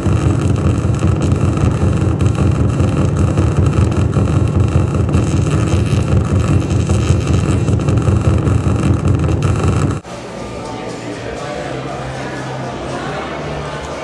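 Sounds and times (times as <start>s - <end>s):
dense rumbling electronic noise: 0.0s - 10.0s.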